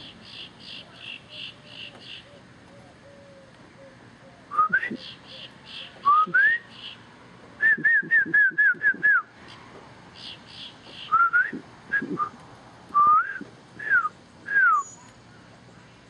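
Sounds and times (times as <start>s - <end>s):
whistled notes: 13.0s - 15.0s.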